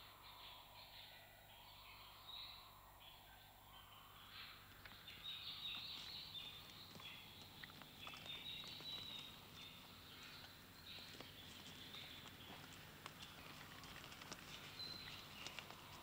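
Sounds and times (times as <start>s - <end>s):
high chirping birdsong: 0.0s - 16.0s
horses walking on forest floor: 4.7s - 16.0s.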